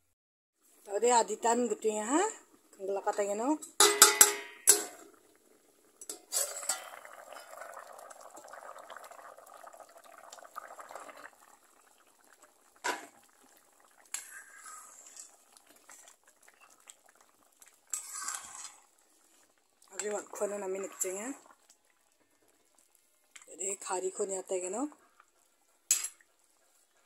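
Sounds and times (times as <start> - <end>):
curry bubbling in pot: 1.6 - 27.0
metal lid clinking on pot: 3.7 - 5.1, 6.0 - 7.0, 25.9 - 26.2.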